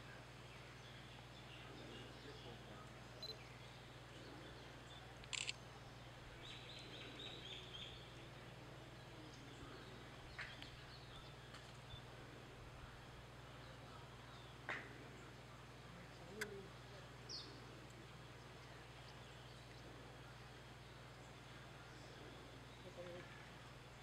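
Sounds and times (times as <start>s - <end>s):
low steady hum: 0.0s - 24.0s
faint high chirps: 3.2s - 3.6s
sharp clicks: 5.2s - 5.6s.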